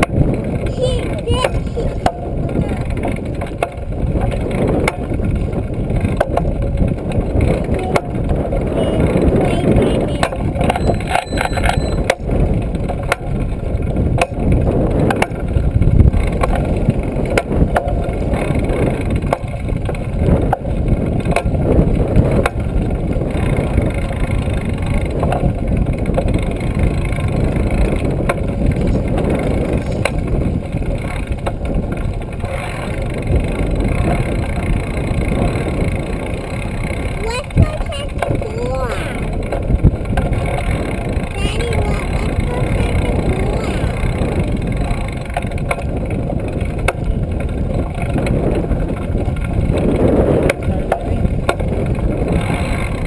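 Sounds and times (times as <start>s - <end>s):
bike rattles and knocks: 0.0s - 53.0s
wind and road noise: 0.0s - 53.0s.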